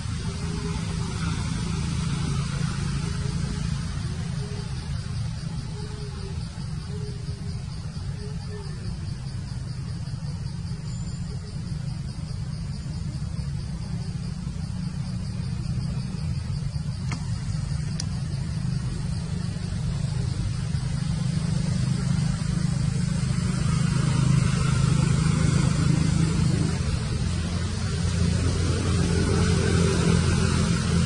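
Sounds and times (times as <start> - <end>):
steady low rumble: 0.0 - 31.0
faint clicks: 17.0 - 18.2.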